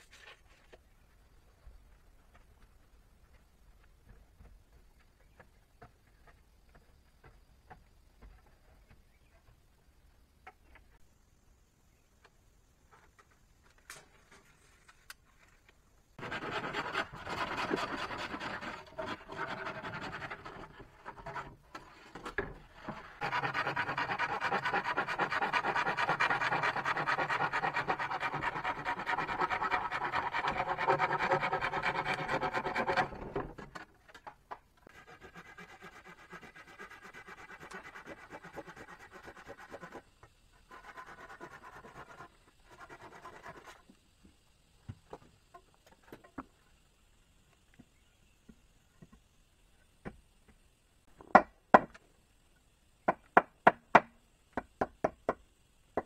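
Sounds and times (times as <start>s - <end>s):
tool scraping on wood: 16.2s - 33.9s, 34.8s - 43.9s.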